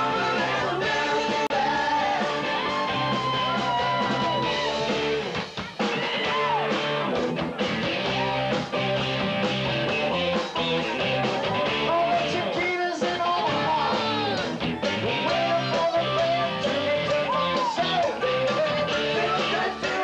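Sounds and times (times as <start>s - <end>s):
person singing lead vocal: 0.0s - 4.6s, 11.4s - 20.0s
drum kit: 0.0s - 20.0s
electric bass guitar: 0.0s - 20.0s.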